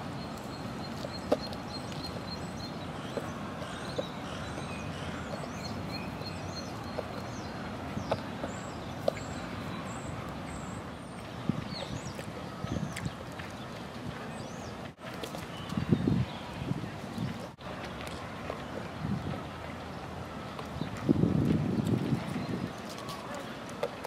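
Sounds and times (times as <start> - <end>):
small birds chirping faintly: 0.0 - 21.1.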